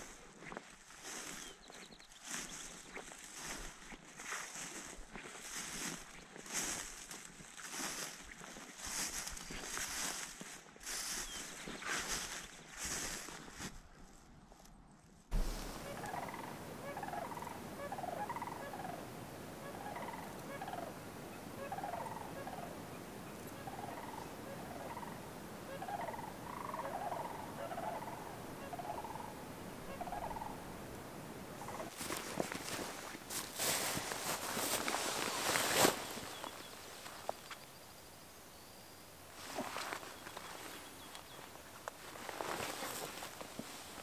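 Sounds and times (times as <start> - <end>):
steady hiss: 15.3 - 21.9
animal chirping calls: 15.5 - 19.0.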